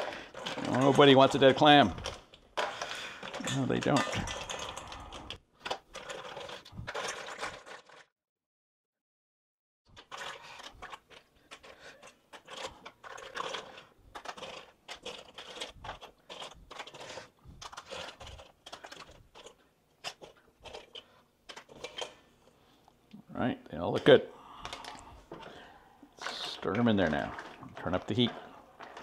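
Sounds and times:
mussel shells clicking in a bowl: 0:10.0 - 0:22.2.

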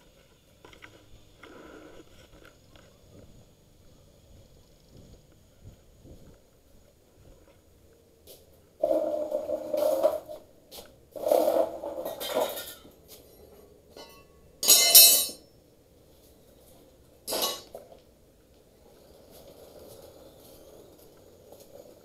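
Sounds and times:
clattering and clinking knocks: 0:14.0 - 0:15.4.

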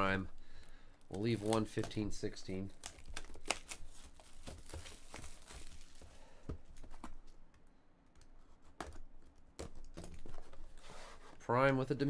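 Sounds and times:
shrink-wrap crinkling and tearing: 0:00.0 - 0:06.2.

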